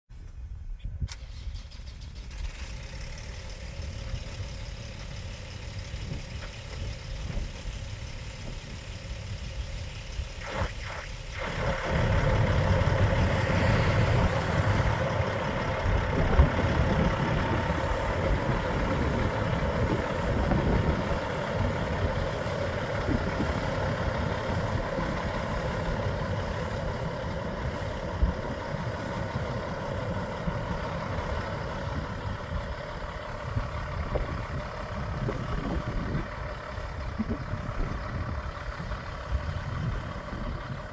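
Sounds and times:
truck diesel engine running: 1.1 - 40.9.

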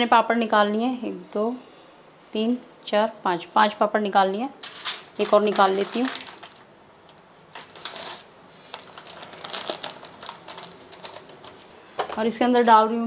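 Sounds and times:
crinkling of crisp papads: 4.6 - 6.7, 7.5 - 11.7.

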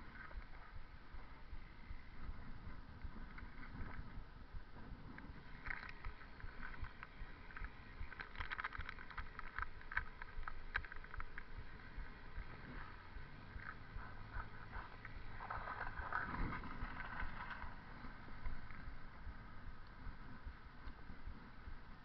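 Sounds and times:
tyre rumble: 0.0 - 22.0
wind on microphone: 0.0 - 22.0
bicycle clicking rattles: 5.1 - 19.1.

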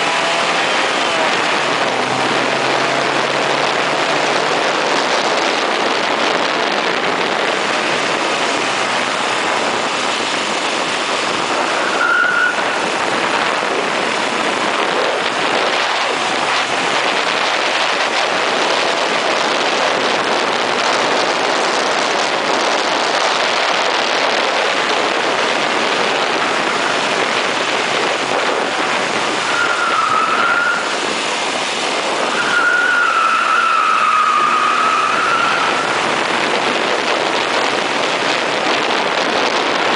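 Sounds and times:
car engine: 0.0 - 39.9
wind and road noise: 0.0 - 39.9
tyres squealing: 29.3 - 31.0, 32.2 - 36.1.

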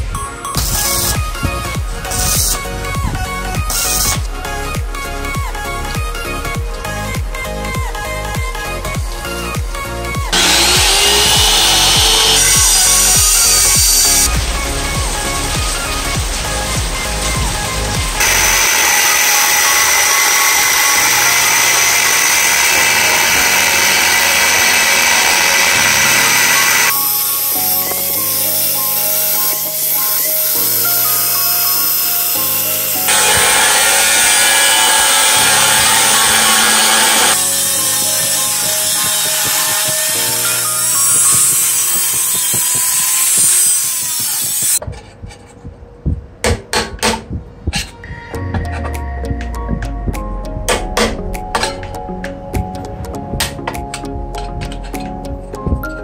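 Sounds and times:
background music: 0.0 - 56.0
power tool whining: 10.3 - 14.3, 18.2 - 44.8.

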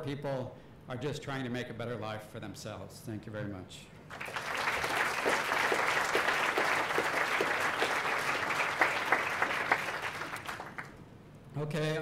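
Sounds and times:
audience applauding: 4.1 - 11.0.

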